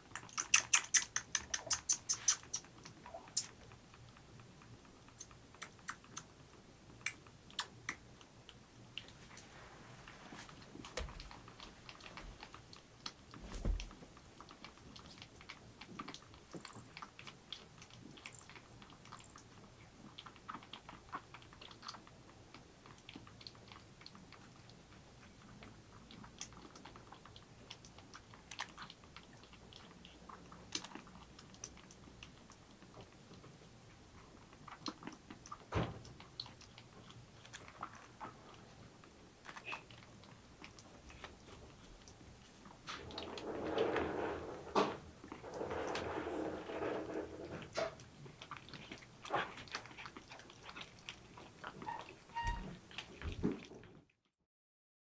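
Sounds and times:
kitten suckling wet clicks: 0.0s - 9.5s, 14.1s - 43.4s, 47.8s - 53.7s.

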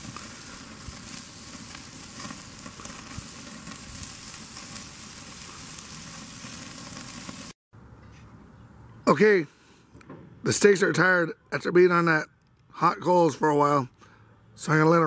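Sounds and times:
steaks sizzling on grill: 0.0s - 7.6s.

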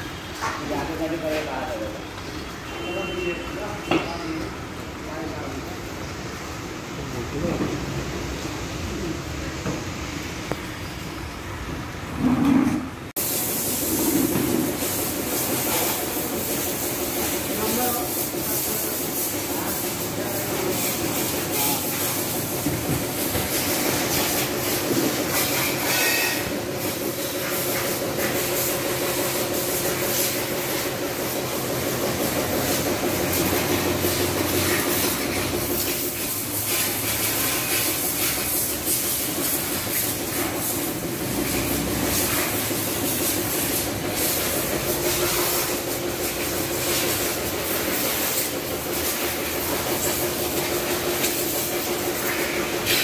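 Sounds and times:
pressure washer pump humming: 13.2s - 53.0s
water jet spraying: 13.2s - 53.0s.

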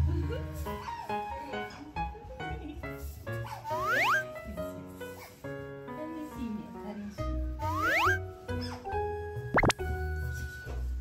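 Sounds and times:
light background music: 0.0s - 11.0s
upward-gliding whistle effect: 7.7s - 8.2s.

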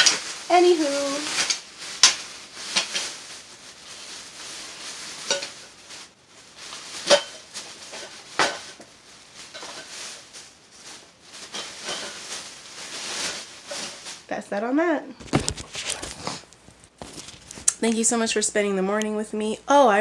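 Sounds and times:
plastic bag rustling and crinkling: 0.0s - 14.4s, 15.2s - 18.4s
hard objects clinking together: 7.0s - 10.0s, 11.4s - 12.3s.

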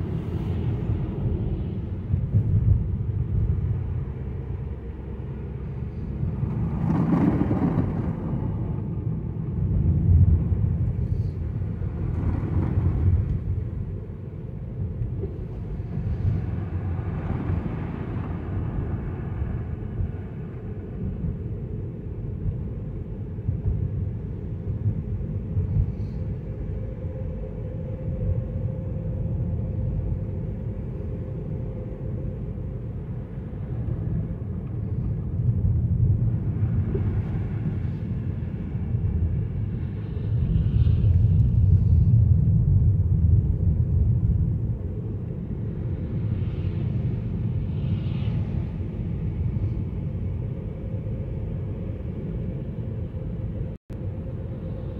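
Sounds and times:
car driving on wet road: 0.0s - 14.1s.

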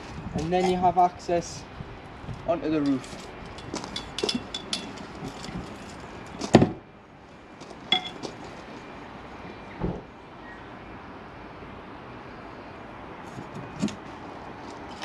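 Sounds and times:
metal ladder clinking and rattling: 2.9s - 5.7s.

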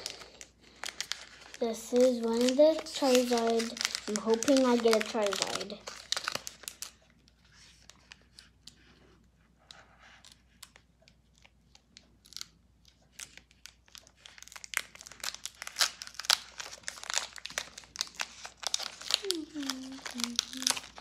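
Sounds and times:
foil wrapper tearing and crinkling: 0.0s - 7.0s, 12.2s - 21.0s.

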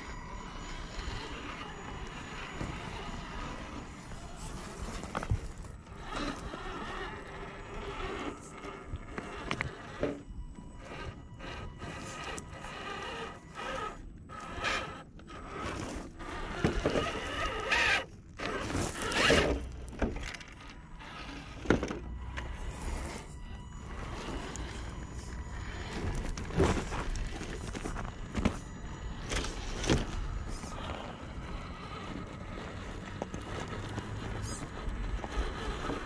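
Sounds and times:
electric motor whine: 0.0s - 36.0s
tyres crunching on gravel: 21.8s - 36.0s.

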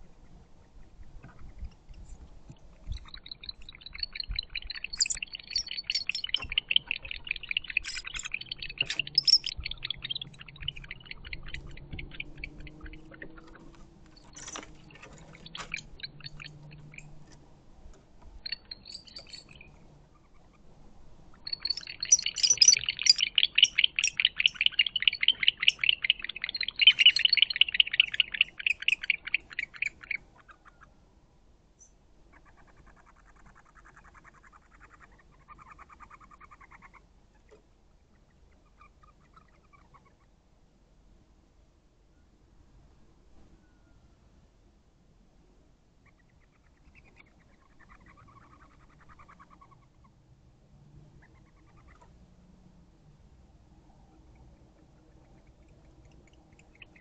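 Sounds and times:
barn owls chittering calls: 2.8s - 17.2s, 18.4s - 20.6s, 21.3s - 30.9s, 32.3s - 37.5s, 38.1s - 40.3s, 46.0s - 50.2s, 51.2s - 52.1s, 54.4s - 57.0s.

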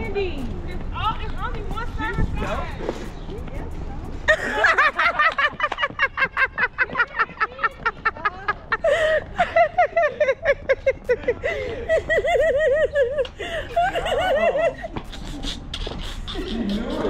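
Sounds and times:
people laughing hard: 4.3s - 17.0s.

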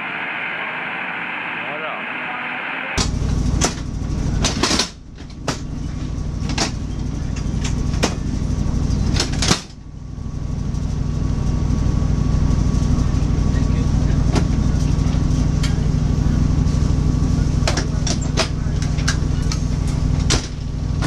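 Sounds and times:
railway carriage rumble: 3.0s - 21.0s
seat parts knocking and clacking: 4.4s - 5.7s, 6.4s - 8.3s, 17.6s - 20.6s.

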